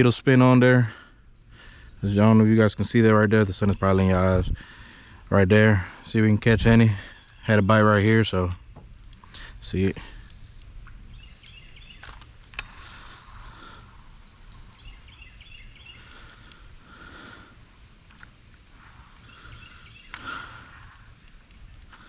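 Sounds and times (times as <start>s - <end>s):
birds chirping: 0.0s - 22.0s
low steady rumble: 0.0s - 22.0s
sharp clicks: 10.2s - 13.1s.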